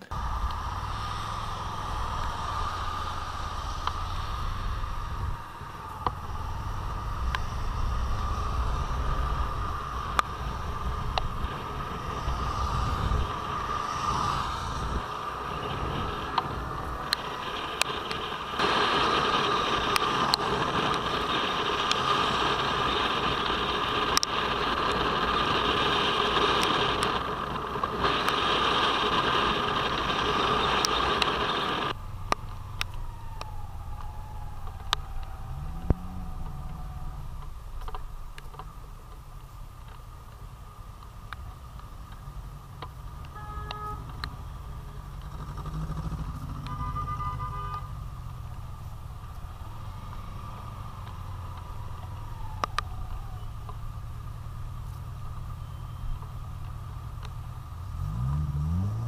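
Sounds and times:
wind and road noise: 0:00.0 - 0:59.0.

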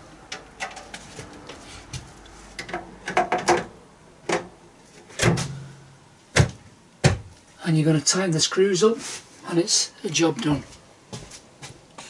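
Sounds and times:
boiler cover panel clicks and knocks: 0:02.6 - 0:04.6, 0:05.2 - 0:05.6.

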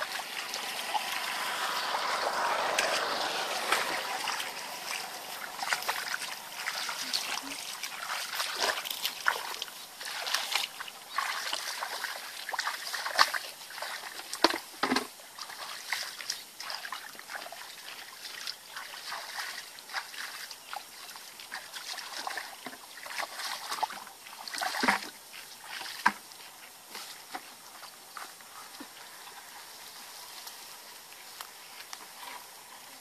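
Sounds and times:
bare feet splashing in mud: 0:00.0 - 0:29.4.

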